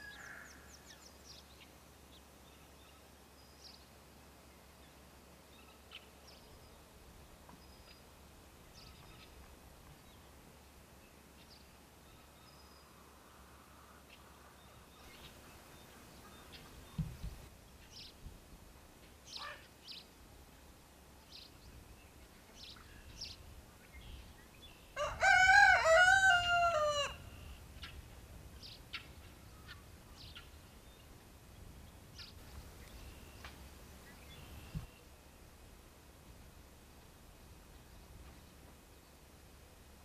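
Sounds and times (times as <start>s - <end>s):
rooster crowing: 25.0s - 27.3s.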